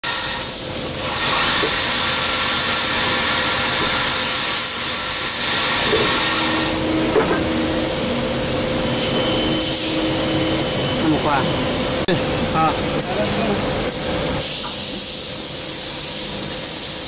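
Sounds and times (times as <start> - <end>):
coolant spraying hiss: 0.0 - 8.6, 9.2 - 17.0
machine hum: 0.7 - 15.8
low tone: 6.3 - 13.9.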